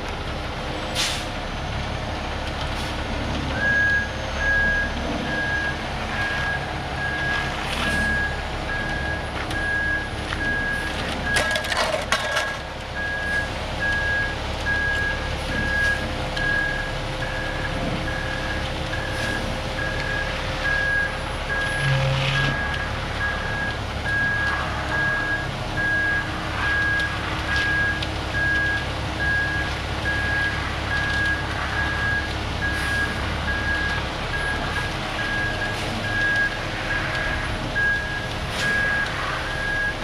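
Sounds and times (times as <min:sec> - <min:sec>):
reversing alarm beeping: 0:03.6 - 0:37.2, 0:37.8 - 0:40.0
truck engine running: 0:22.5 - 0:40.0.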